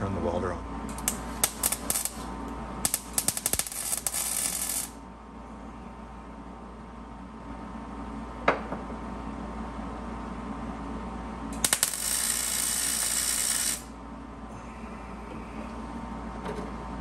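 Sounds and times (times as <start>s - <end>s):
sharp welding crack: 0.9s - 5.0s, 11.6s - 13.9s
welding arc crackling: 0.9s - 5.0s, 11.6s - 14.0s.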